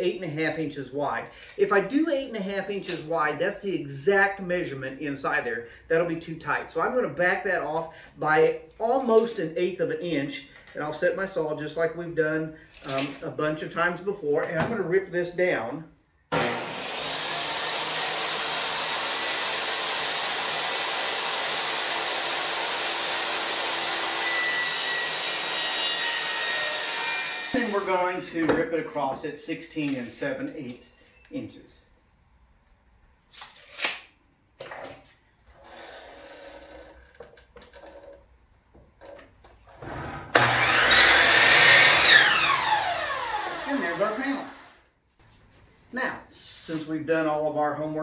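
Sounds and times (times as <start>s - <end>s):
table saw ripping panel: 16.3s - 27.8s, 33.3s - 34.1s, 39.8s - 44.8s
miter saw whine: 40.4s - 44.8s.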